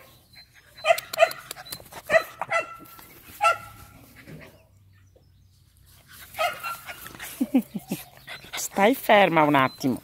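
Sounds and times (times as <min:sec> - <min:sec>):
dog yapping: 0:00.8 - 0:02.8, 0:06.4 - 0:07.0.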